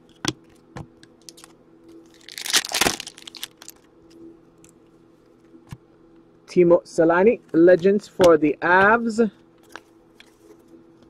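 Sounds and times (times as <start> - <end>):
cards rustling: 1.2 - 3.9.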